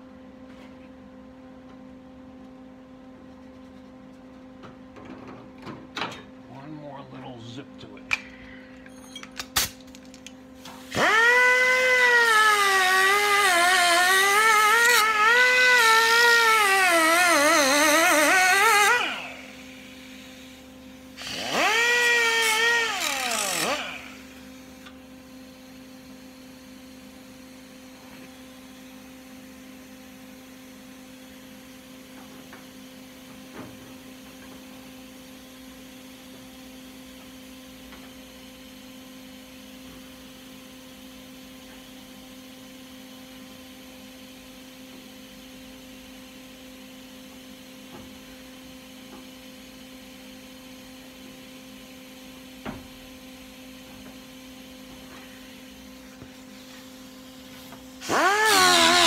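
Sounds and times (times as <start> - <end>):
handheld power tool whining: 10.6 - 26.6, 55.0 - 59.0.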